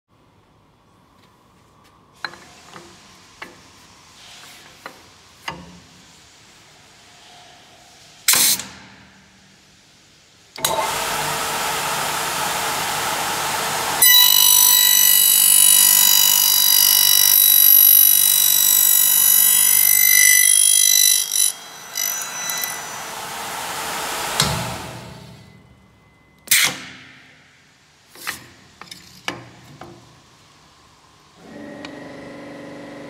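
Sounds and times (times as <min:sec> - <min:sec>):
machine clack with hiss: 0:02.2 - 0:06.6, 0:08.2 - 0:09.7
spindle motor whirring: 0:12.9 - 0:25.4
cutter ringing whine on metal: 0:14.0 - 0:26.3.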